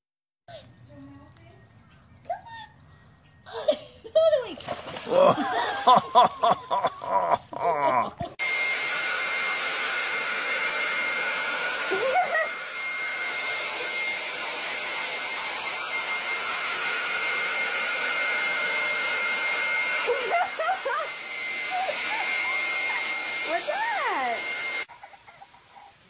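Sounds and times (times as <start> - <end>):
people laughing and talking: 5.1 - 8.4
hair dryer blowing: 5.1 - 25.2.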